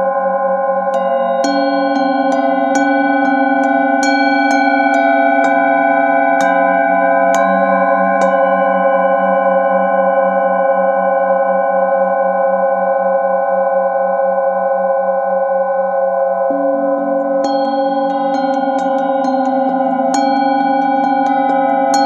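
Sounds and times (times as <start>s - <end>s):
ringing singing bowl tones: 0.2s - 13.3s, 14.2s - 22.0s
singing bowls struck with mallet: 0.8s - 11.4s, 16.5s - 22.0s.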